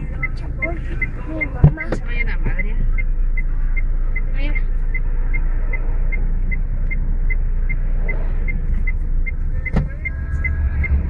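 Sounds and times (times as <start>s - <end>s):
car idling: 0.0s - 11.0s
indicator ticking: 0.0s - 11.0s
traffic passing: 0.0s - 11.0s.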